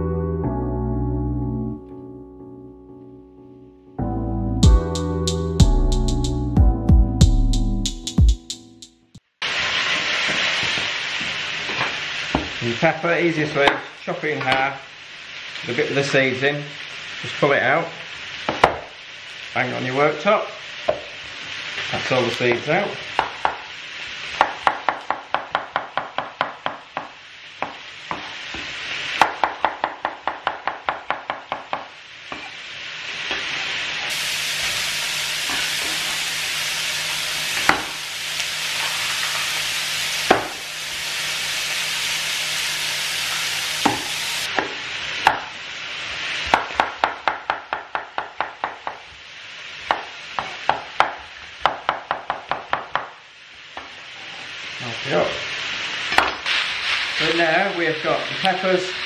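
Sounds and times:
food sizzling in a wok: 0:09.4 - 0:59.0
knife chopping on wooden board: 0:37.6 - 0:37.9, 0:40.3 - 0:40.6, 0:43.8 - 0:44.7.

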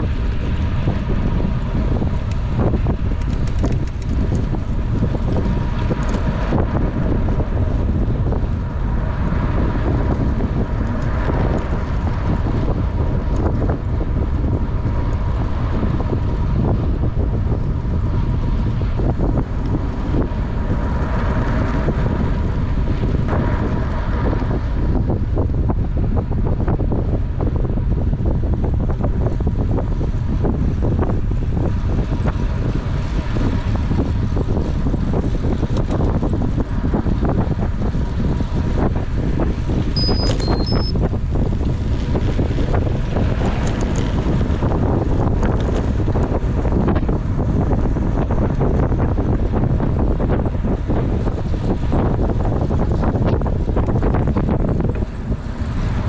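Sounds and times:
wind buffeting microphone: 0:00.0 - 0:56.0
brief high tones: 0:40.0 - 0:40.9.

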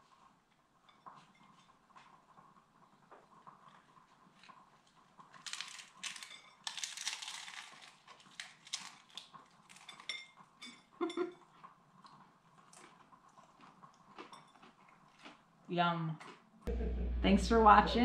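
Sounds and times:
taco shell crunching: 0:04.4 - 0:10.2.

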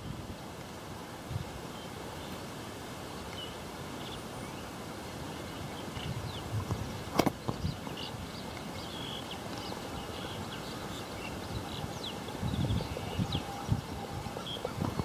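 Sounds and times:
bird chirps: 0:07.4 - 0:15.0.

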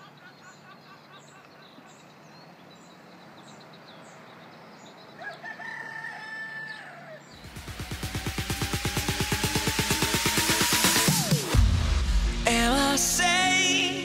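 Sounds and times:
small birds chirping: 0:00.0 - 0:07.5
rooster crowing: 0:05.2 - 0:07.3
electronic music with fast beat: 0:07.4 - 0:14.0.

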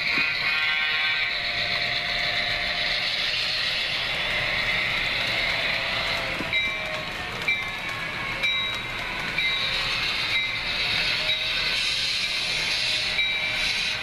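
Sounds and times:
model train rolling hiss: 0:00.0 - 0:14.0
wheels clicking over rail joints: 0:03.8 - 0:11.8.

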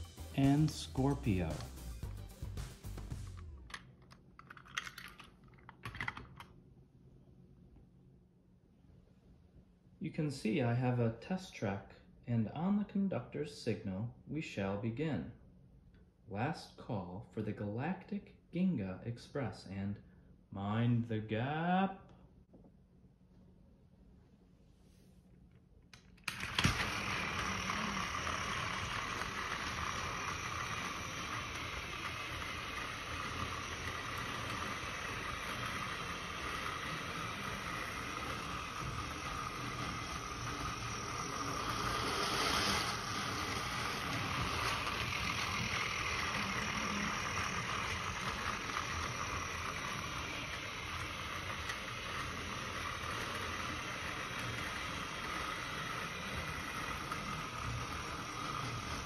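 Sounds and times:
toy train motor whirring: 0:26.0 - 0:59.0.

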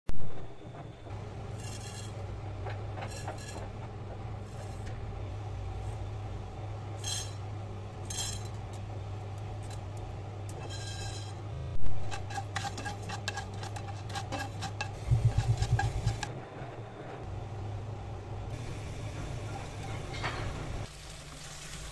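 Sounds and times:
steady low hum: 0:00.2 - 0:20.9
spatula clicking and scraping a pan: 0:12.0 - 0:16.3.

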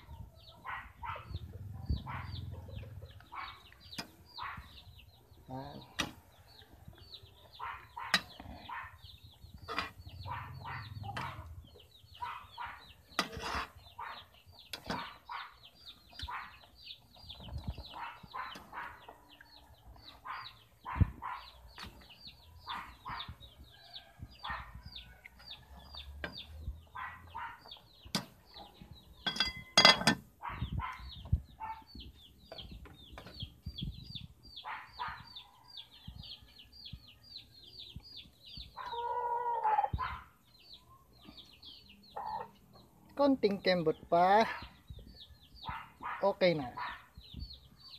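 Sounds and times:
chicks peeping: 0:00.0 - 0:29.6, 0:30.2 - 0:47.9
chickens clucking: 0:00.0 - 0:37.2, 0:37.8 - 0:47.9
metal pot and lid clattering: 0:09.7 - 0:10.0, 0:29.2 - 0:30.3.

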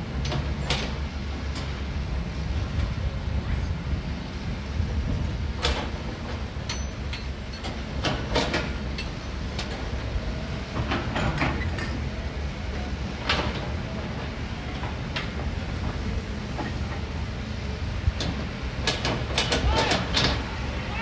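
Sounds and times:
metallic clanks and knocks: 0:05.6 - 0:09.9, 0:10.7 - 0:12.2, 0:18.1 - 0:20.5.

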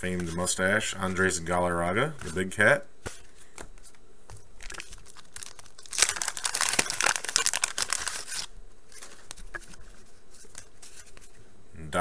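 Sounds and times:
wrapper tearing and crinkling: 0:04.6 - 0:09.4.

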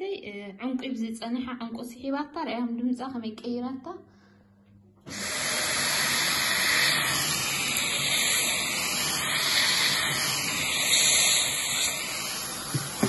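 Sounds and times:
stick vacuum rushing hiss: 0:05.1 - 0:13.0.

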